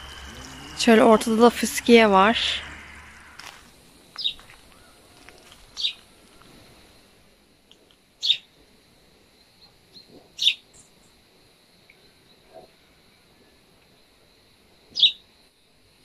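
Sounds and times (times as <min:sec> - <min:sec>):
faint high-pitched background: 0:00.0 - 0:03.7.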